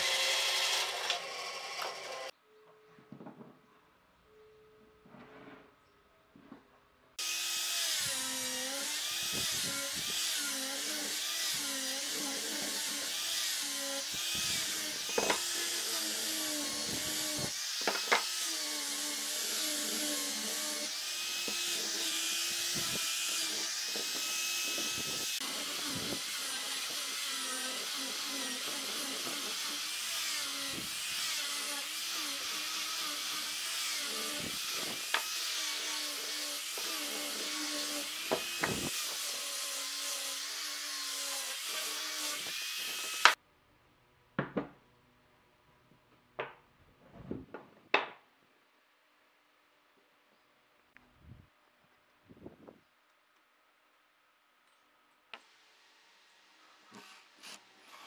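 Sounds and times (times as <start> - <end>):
angle grinder sanding wood: 0.0 - 2.3, 7.2 - 43.4, 56.7 - 58.0.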